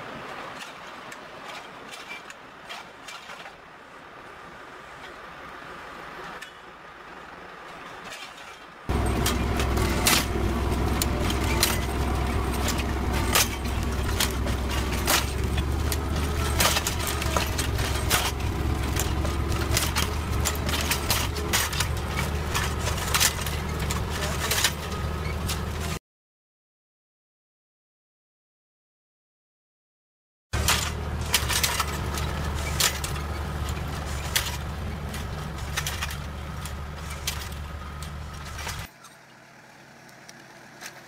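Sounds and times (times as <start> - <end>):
tractor engine under load: 7.3 - 26.0, 30.6 - 41.0
metallic clicks and rattles: 8.1 - 26.0, 30.6 - 38.9.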